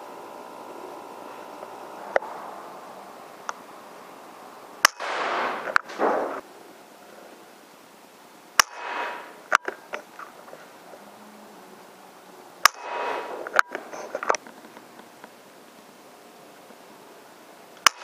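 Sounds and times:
air rifle shots: 4.8s - 6.4s, 8.6s - 9.6s, 12.6s - 13.6s, 17.8s - 18.0s
sharp clicks: 8.6s - 10.3s, 12.6s - 15.4s.

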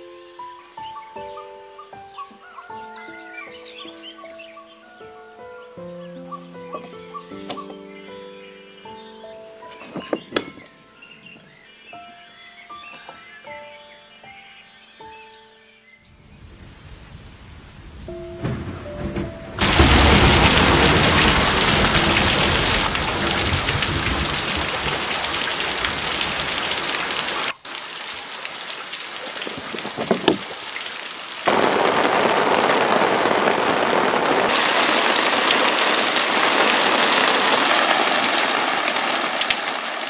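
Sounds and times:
low rumble of thunder: 16.2s - 26.9s, 31.5s - 38.2s
heavy rainfall: 16.2s - 40.0s
sharp water drips: 19.6s - 33.2s, 34.5s - 40.0s.

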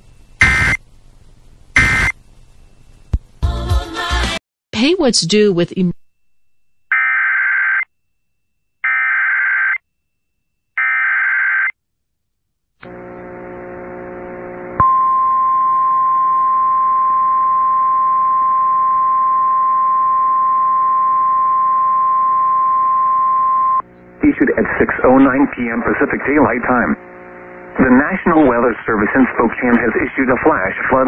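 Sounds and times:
buzz: 12.8s - 14.8s
steady single-pitch attention tone: 14.8s - 23.8s.

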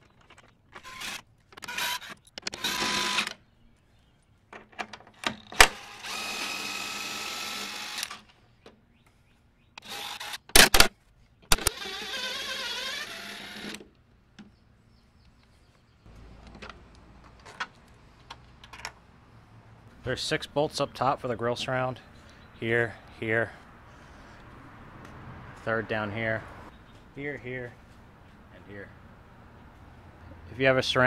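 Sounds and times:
cordless drill motor whining: 0.8s - 3.3s, 5.6s - 8.2s, 9.8s - 10.4s, 11.6s - 13.8s
sharp clicks: 9.8s - 12.1s.

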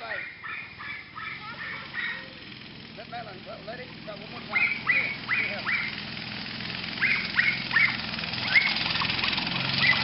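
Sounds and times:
dog yapping: 0.0s - 2.4s, 4.4s - 6.0s, 7.0s - 10.0s
go-kart engine idling: 0.0s - 10.0s.

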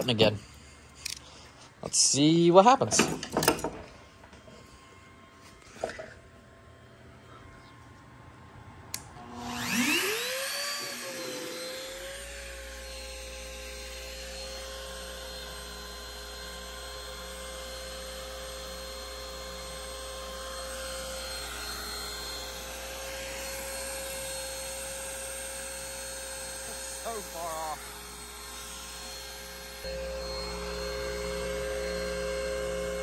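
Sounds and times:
router spinning with high whine: 8.6s - 33.0s.

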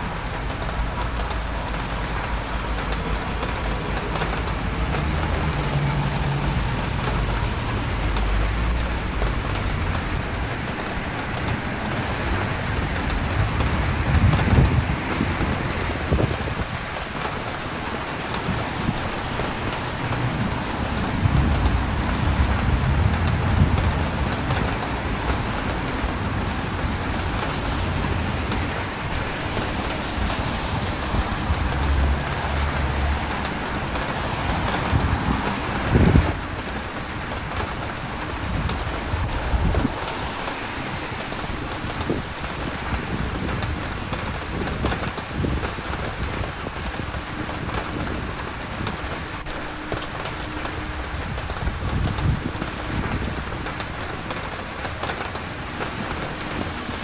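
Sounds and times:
car engines rumbling past: 0.0s - 9.0s, 17.6s - 44.1s
tyres hissing on wet road: 0.0s - 57.0s.

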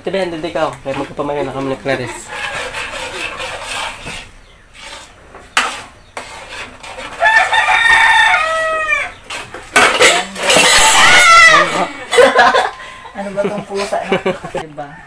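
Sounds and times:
rooster crowing: 2.0s - 3.2s, 7.2s - 9.2s, 10.6s - 13.1s, 14.8s - 15.0s.

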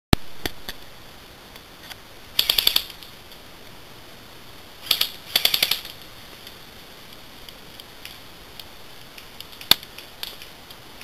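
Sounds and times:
airsoft gun bursts: 2.3s - 3.1s, 4.8s - 6.0s.

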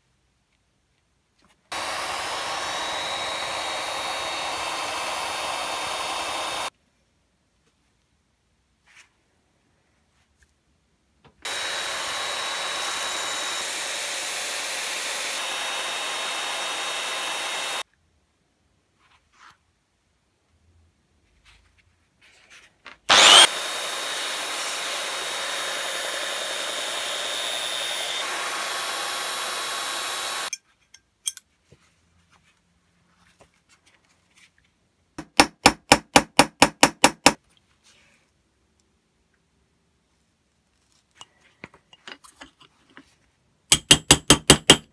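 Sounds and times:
electric belt sander running: 1.7s - 6.7s, 11.5s - 17.8s, 23.1s - 30.5s.

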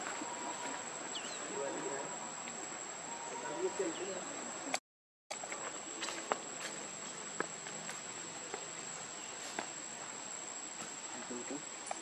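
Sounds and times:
high-pitched insect drone: 0.0s - 4.6s
outdoor hiss: 0.0s - 12.0s.

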